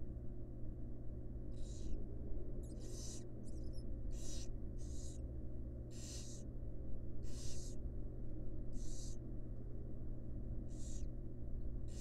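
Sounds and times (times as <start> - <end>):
steady low hum: 0.0 - 12.0
owl nestlings hissing: 1.6 - 2.0, 2.7 - 5.2, 5.9 - 6.5, 7.2 - 7.8, 8.7 - 9.2, 10.7 - 11.1.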